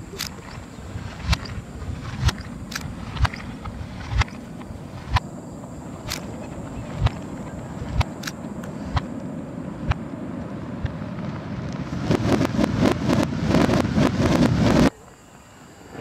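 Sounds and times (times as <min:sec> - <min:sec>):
low rumble: 0:00.0 - 0:14.9
dense firework crackle: 0:00.0 - 0:15.0
reversed firework reports: 0:00.0 - 0:15.0.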